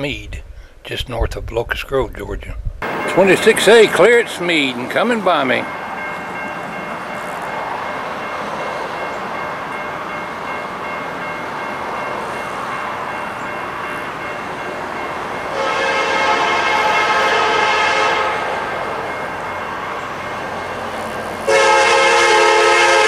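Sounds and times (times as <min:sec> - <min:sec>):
diesel locomotive engines rumbling: 0:02.8 - 0:23.0
train air horn chord: 0:15.5 - 0:18.7, 0:21.5 - 0:23.0.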